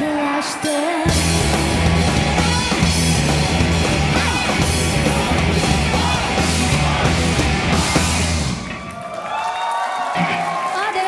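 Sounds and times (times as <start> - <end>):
rock band playing: 0.6 - 9.0.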